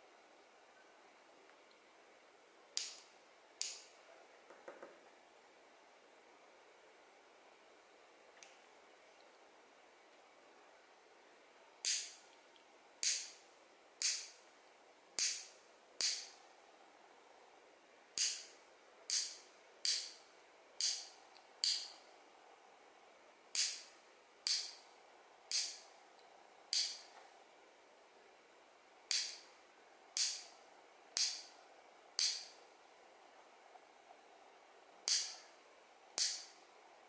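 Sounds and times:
nail clipper clicking: 0:11.8 - 0:12.2, 0:13.0 - 0:13.4, 0:14.0 - 0:14.3, 0:15.2 - 0:16.3, 0:18.2 - 0:18.5, 0:20.8 - 0:21.9, 0:24.5 - 0:24.8, 0:25.5 - 0:25.8, 0:26.7 - 0:27.1, 0:29.1 - 0:29.4, 0:30.2 - 0:30.5, 0:31.2 - 0:31.5, 0:32.2 - 0:32.5, 0:35.1 - 0:35.4, 0:36.2 - 0:36.6.

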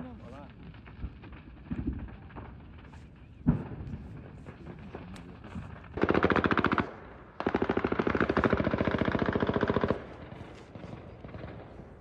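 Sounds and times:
machine gun firing bursts: 0:05.8 - 0:12.0.

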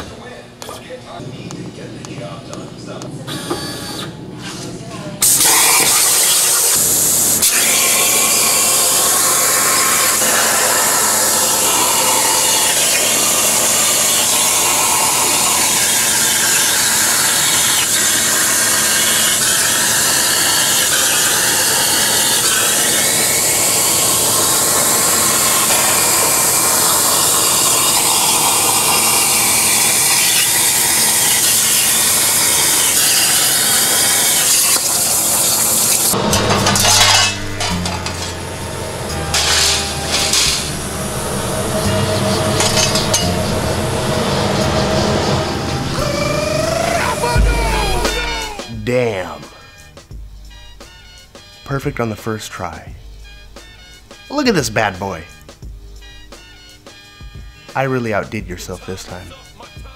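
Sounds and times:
plasma cutter hissing: 0:05.2 - 0:48.7
whining tone: 0:19.0 - 0:48.9.

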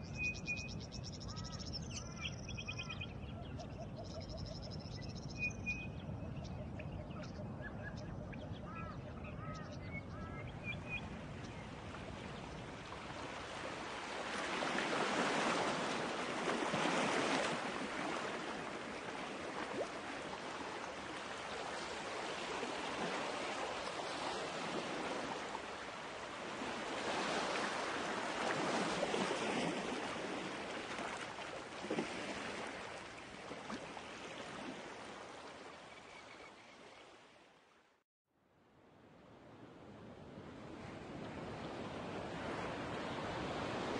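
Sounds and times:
ocean waves washing: 0:10.1 - 0:35.8, 0:39.6 - 0:43.9.

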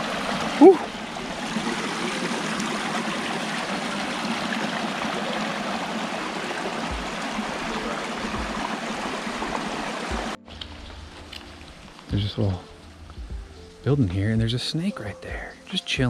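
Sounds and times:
mountain stream rushing: 0:00.0 - 0:10.4.

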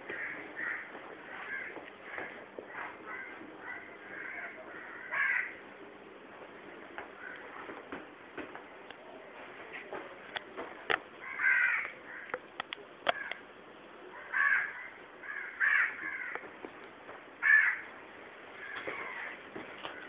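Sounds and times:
crow cawing: 0:00.1 - 0:05.6, 0:07.2 - 0:07.5, 0:11.2 - 0:12.4, 0:13.1 - 0:13.4, 0:14.2 - 0:16.4, 0:17.4 - 0:17.9, 0:18.6 - 0:19.4
sharp clicks: 0:11.8 - 0:13.4.

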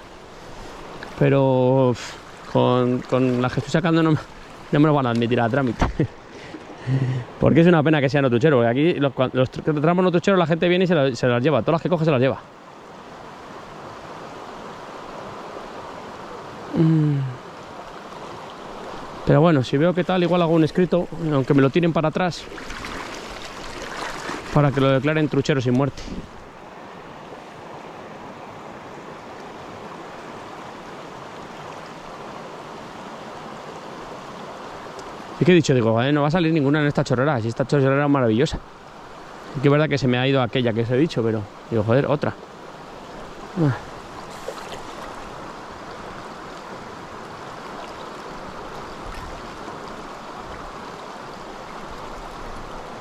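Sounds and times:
river water rushing: 0:00.0 - 0:53.0
short vocal sound: 0:16.7 - 0:17.4.

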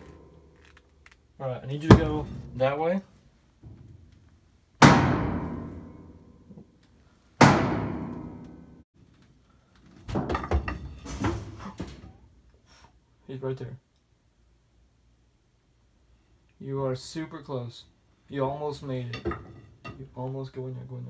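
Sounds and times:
loud bangs on hard surface: 0:01.8 - 0:02.8, 0:04.8 - 0:06.4, 0:07.4 - 0:08.8.

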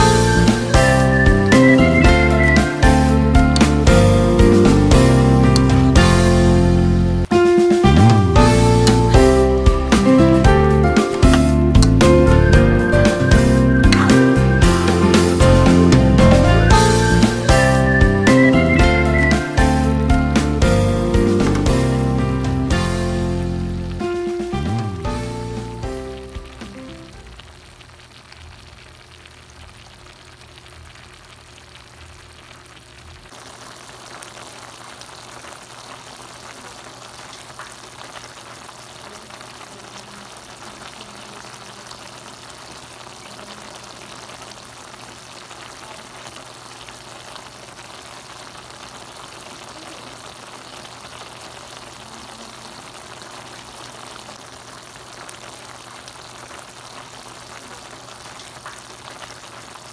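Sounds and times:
vegetables sizzling in a pan: 0:00.0 - 0:07.7, 0:08.4 - 0:59.9
background music: 0:00.0 - 0:27.4.

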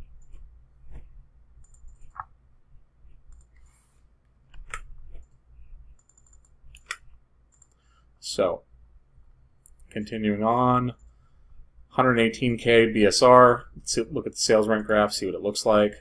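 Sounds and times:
mouse and keyboard clicks: 0:04.5 - 0:05.4, 0:06.0 - 0:07.8.

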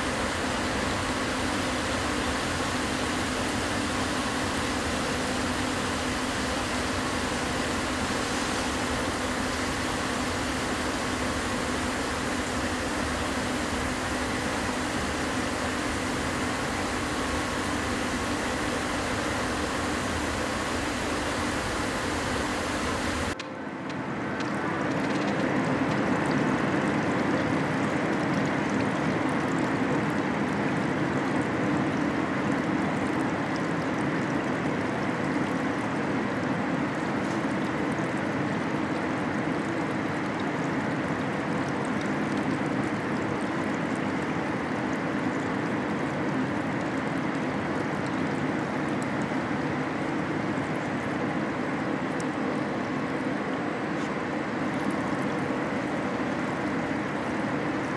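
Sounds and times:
rushing watery noise: 0:00.0 - 0:29.6.

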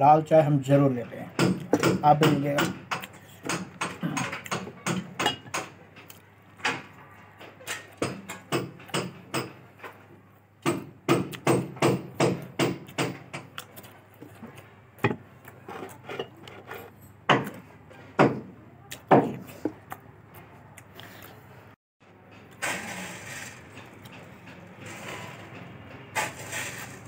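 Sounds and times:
sharp knocks: 0:01.4 - 0:05.8, 0:10.6 - 0:13.5, 0:18.2 - 0:18.5.

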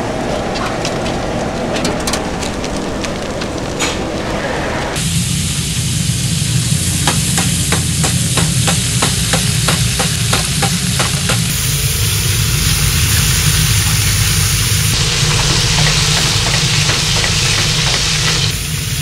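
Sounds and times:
low hum: 0:00.0 - 0:19.0
fish sizzling in hot oil: 0:11.5 - 0:19.0
oil popping: 0:12.4 - 0:18.6.

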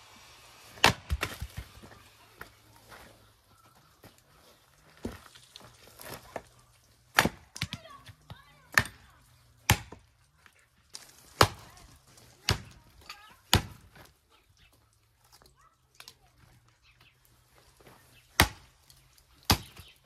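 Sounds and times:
axe chopping wood: 0:00.8 - 0:02.0, 0:07.1 - 0:08.1, 0:08.7 - 0:10.1, 0:11.3 - 0:11.7, 0:12.4 - 0:12.8, 0:13.4 - 0:14.0, 0:18.3 - 0:18.8, 0:19.4 - 0:20.0.

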